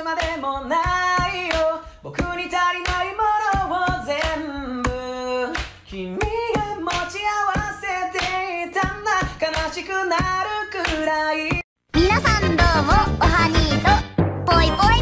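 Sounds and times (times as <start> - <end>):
person singing: 0.0 - 15.0
hands slapping plastic basket drum: 1.2 - 11.6.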